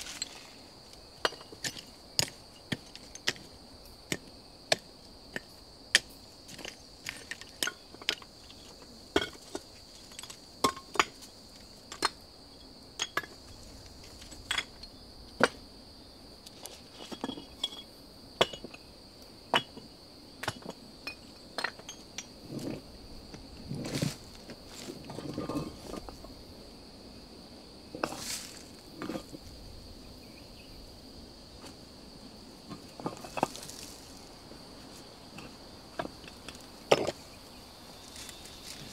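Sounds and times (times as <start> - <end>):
rocks clinking on a pile: 0.0 - 12.2, 13.0 - 15.6, 16.5 - 18.9, 19.5 - 26.3, 27.9 - 29.5, 32.7 - 34.2, 35.3 - 37.2
insect drone: 0.0 - 38.9.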